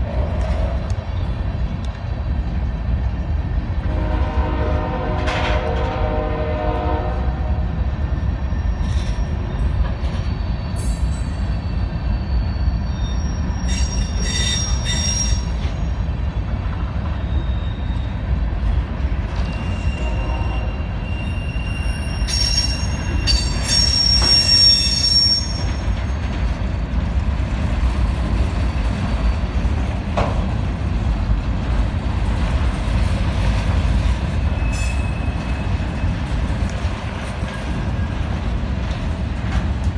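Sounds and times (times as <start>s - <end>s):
freight train wheels rumbling: 0.0s - 39.9s
wheel squeals: 8.5s - 28.1s, 34.2s - 36.4s.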